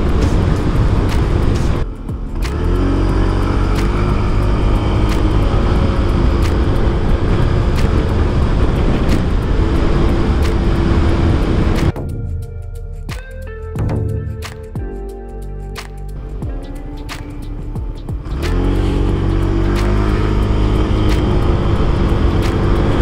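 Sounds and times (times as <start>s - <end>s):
scooter engine accelerating: 0.0s - 12.0s, 17.3s - 23.0s
wind rush: 0.0s - 12.3s, 16.2s - 23.0s.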